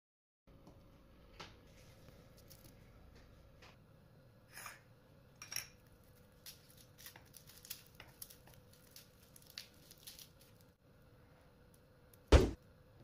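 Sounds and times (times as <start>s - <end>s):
papery crackles of garlic skins: 1.7s - 2.8s, 5.8s - 10.8s.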